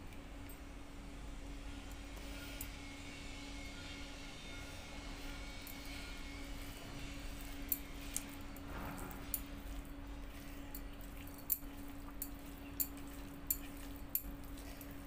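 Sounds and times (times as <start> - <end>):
steady low hum: 0.0 - 15.0
wet squishing of food: 5.2 - 15.0.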